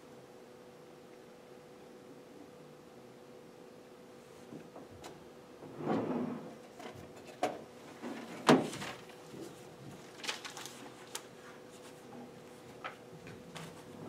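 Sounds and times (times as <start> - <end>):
faint steady hum: 0.0 - 14.0
papers rustling: 6.7 - 14.0.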